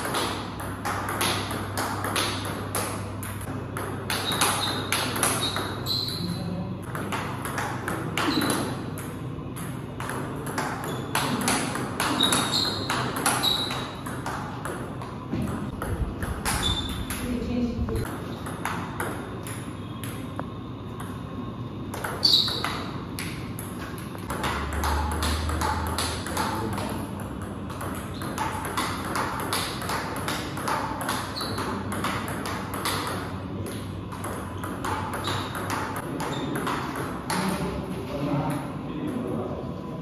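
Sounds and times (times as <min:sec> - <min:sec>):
table tennis ball clicking: 0:06.8 - 0:17.3, 0:21.9 - 0:37.6.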